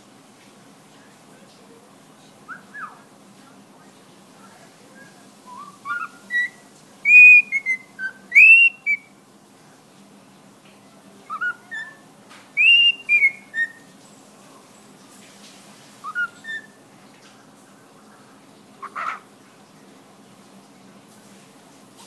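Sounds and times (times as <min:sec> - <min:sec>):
faint bird chirps: 0:02.2 - 0:03.1, 0:04.4 - 0:09.1, 0:11.2 - 0:13.9, 0:16.0 - 0:16.8
cockatiel whistling a tune: 0:05.0 - 0:09.1, 0:11.3 - 0:12.0, 0:12.6 - 0:13.8, 0:16.0 - 0:16.8.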